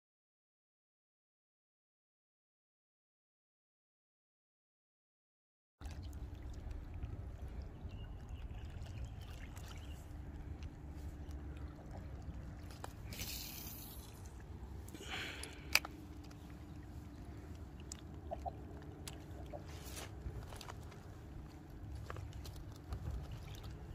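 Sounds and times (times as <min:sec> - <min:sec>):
faint steady hum: 0:05.8 - 0:23.9
small waves lapping at shore: 0:05.8 - 0:23.9
short hissing rustles: 0:13.0 - 0:14.2
wind rumbling on microphone: 0:16.4 - 0:23.9.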